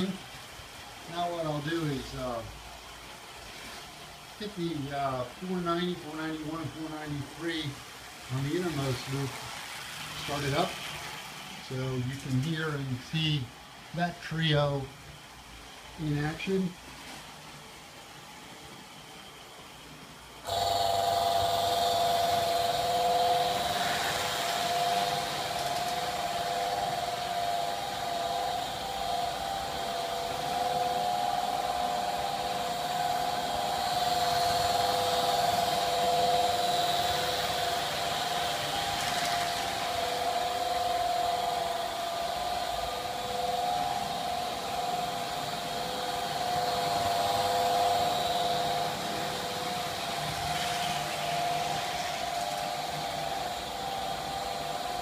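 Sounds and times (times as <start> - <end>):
faint hiss: 0.0 - 55.0
droning hum of held tones: 20.4 - 55.0.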